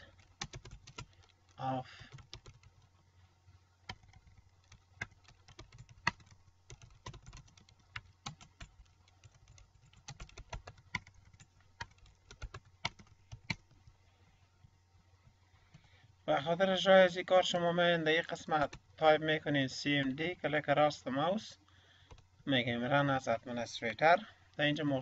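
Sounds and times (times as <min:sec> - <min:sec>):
computer keyboard typing: 0:00.1 - 0:02.9, 0:03.9 - 0:13.8, 0:22.1 - 0:22.3.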